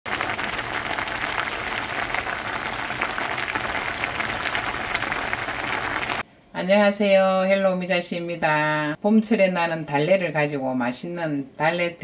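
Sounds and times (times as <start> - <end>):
soup boiling with bursting bubbles: 0.0 - 6.2.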